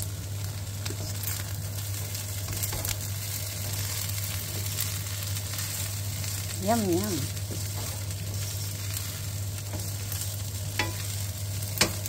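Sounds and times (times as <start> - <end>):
rice sizzling in a pan: 0.0 - 12.0
wooden spatula stirring: 7.2 - 11.2.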